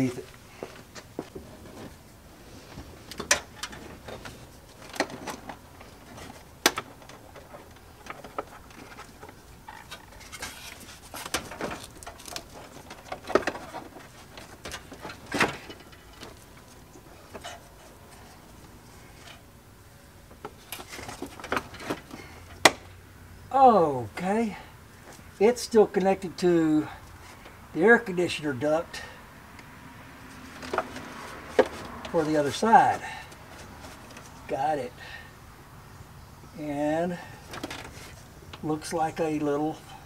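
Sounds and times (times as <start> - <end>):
rustling: 0.0 - 22.8, 30.2 - 34.5, 37.3 - 38.6.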